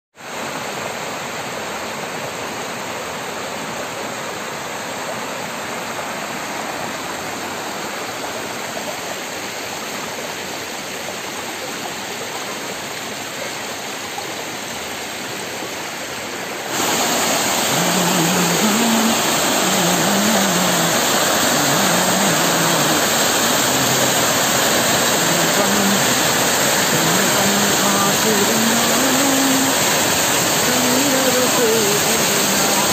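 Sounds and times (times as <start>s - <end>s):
small waterfall: 0.2s - 32.9s
stream rushing over rocks: 0.2s - 32.9s.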